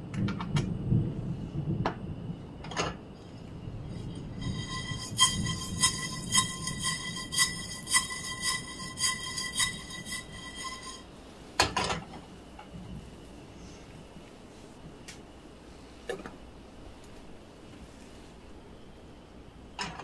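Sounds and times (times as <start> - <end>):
spices rattling in frying pan: 3.9 - 10.9
faint metallic ring: 3.9 - 11.1.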